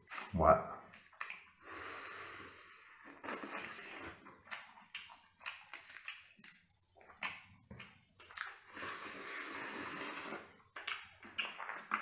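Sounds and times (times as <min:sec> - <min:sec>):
person chewing crayfish: 0:00.9 - 0:02.1, 0:03.0 - 0:12.0
slurping and sucking: 0:01.6 - 0:04.2, 0:08.4 - 0:10.6.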